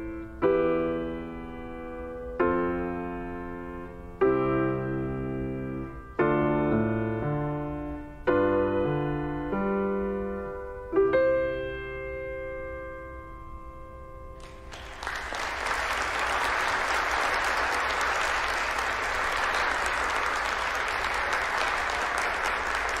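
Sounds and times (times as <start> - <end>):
audience clapping: 14.4 - 23.0.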